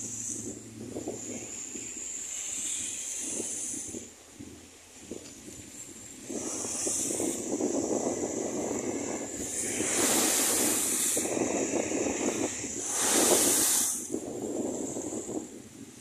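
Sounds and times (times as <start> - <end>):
spray hissing: 0.0 - 4.2, 5.7 - 15.4
rush of water: 6.3 - 15.2
waves crashing against a seawall: 6.3 - 15.2.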